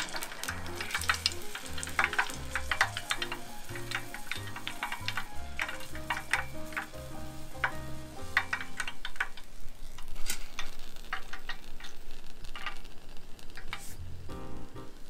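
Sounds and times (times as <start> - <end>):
chopsticks clicking on wire rack: 0.0 - 7.0
background music: 0.0 - 9.0, 14.1 - 15.0
oil sizzling and crackling: 0.0 - 15.0.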